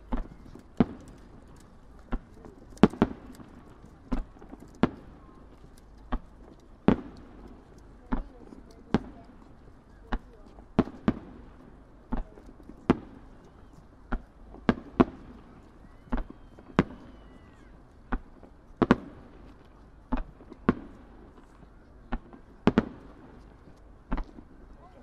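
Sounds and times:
distant firework bangs: 14.1 - 19.5.

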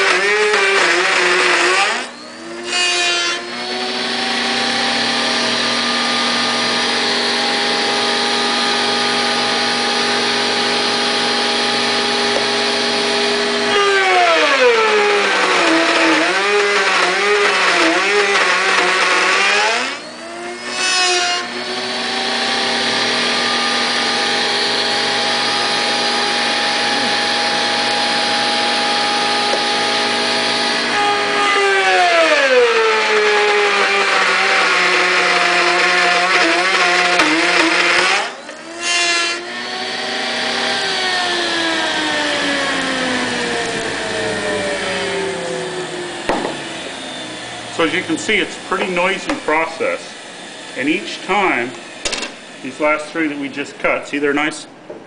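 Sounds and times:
router motor running: 0.0 - 54.4
dust collector rushing: 42.0 - 54.0.

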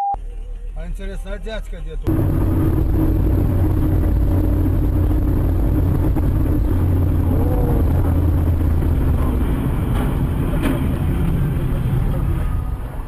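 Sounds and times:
car engine and tyre rumble: 0.2 - 13.0.

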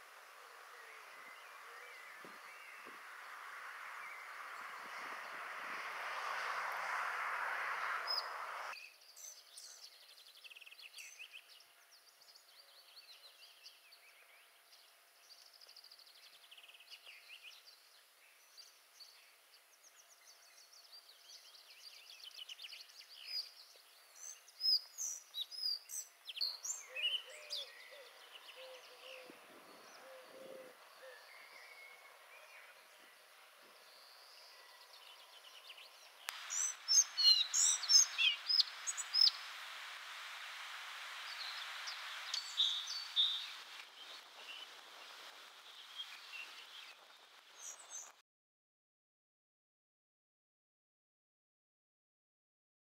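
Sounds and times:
wind noise on microphone: 0.0 - 8.8, 29.1 - 30.5
songbirds singing and chirping: 0.0 - 48.2.

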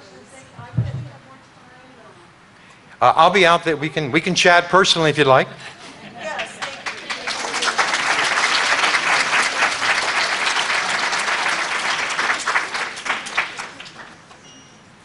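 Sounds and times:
audience applauding: 6.3 - 14.5.

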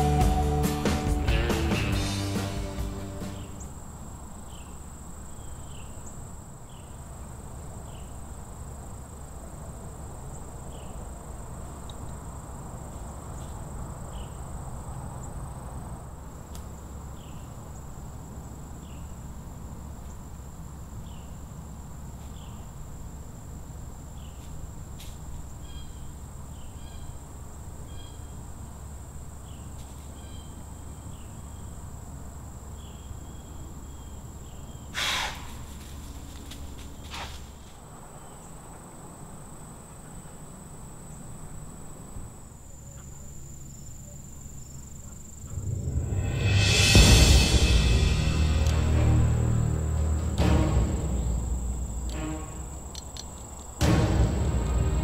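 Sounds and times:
short insect chirps: 32.7 - 38.6
low steady rumble: 45.3 - 55.0.

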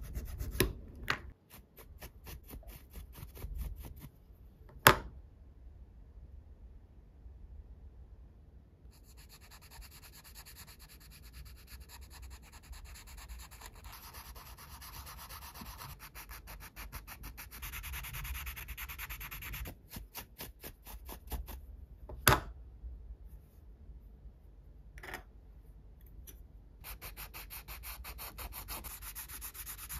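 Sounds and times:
sanding sponge scratching plastic: 9.0 - 21.4, 26.8 - 29.9.

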